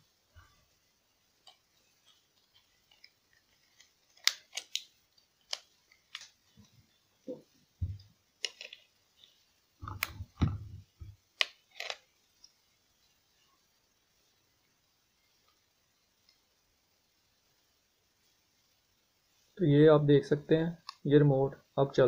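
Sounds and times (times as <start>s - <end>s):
plastic clicks and snaps: 3.8s - 6.4s, 20.8s - 21.0s.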